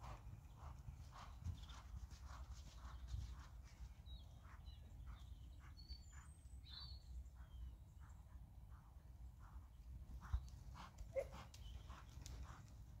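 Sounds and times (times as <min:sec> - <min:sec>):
horse hoofbeats trotting: 0:00.0 - 0:13.0
bird chirps: 0:04.0 - 0:08.3.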